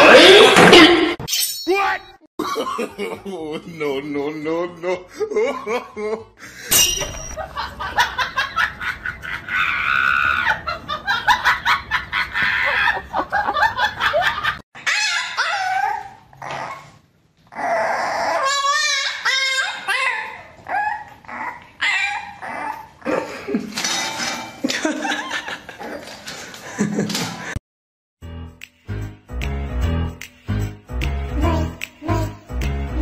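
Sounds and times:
people laughing: 0:02.4 - 0:06.7, 0:24.6 - 0:25.8
puppy whining and yelping: 0:14.8 - 0:23.1.

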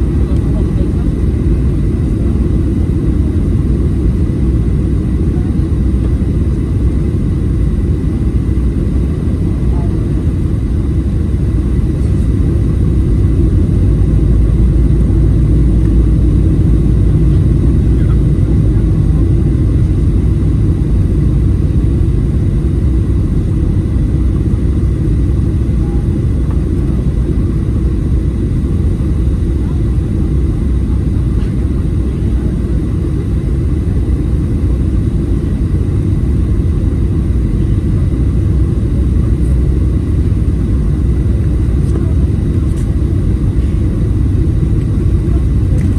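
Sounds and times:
airplane cabin engine rumble: 0:00.0 - 0:45.9.

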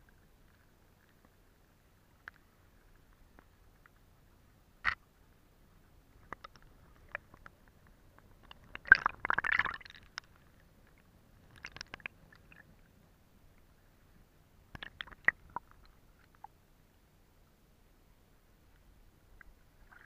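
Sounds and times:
stream water gurgling: 0:05.6 - 0:13.9, 0:14.7 - 0:16.9, 0:19.2 - 0:20.0.

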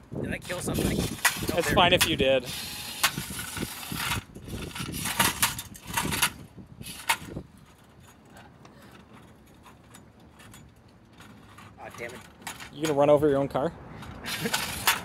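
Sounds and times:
robot rattling over asphalt: 0:00.4 - 0:08.2, 0:14.2 - 0:15.0.

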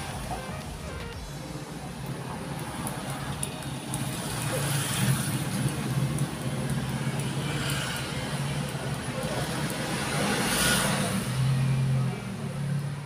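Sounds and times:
vehicle engine humming: 0:00.0 - 0:07.4.

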